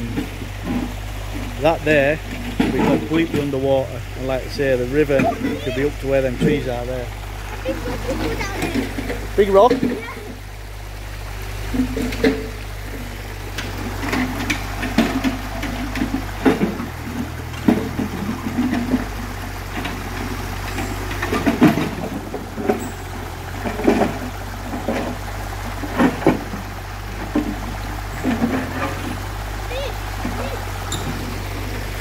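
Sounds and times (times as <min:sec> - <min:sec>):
knocks and clanks: 0:00.0 - 0:03.9, 0:11.6 - 0:32.0
diesel engine running: 0:00.0 - 0:32.0
river rushing: 0:00.0 - 0:32.0.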